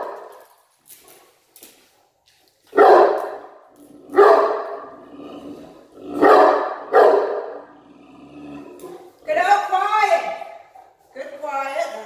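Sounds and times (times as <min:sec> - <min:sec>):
dog barking: 0:02.7 - 0:05.0, 0:06.2 - 0:07.7.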